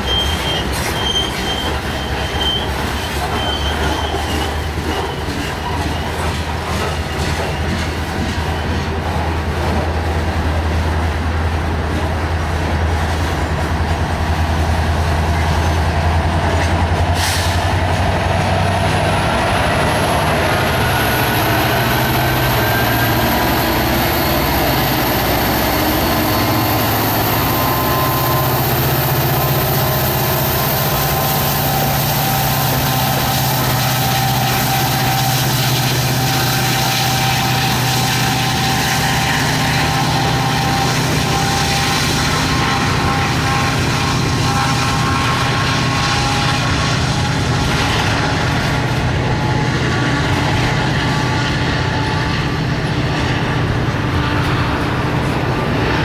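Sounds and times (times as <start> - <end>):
diesel locomotive throttling up: 0.0 - 56.0
freight cars rolling on rails: 0.0 - 56.0
high engine whine: 13.8 - 56.0.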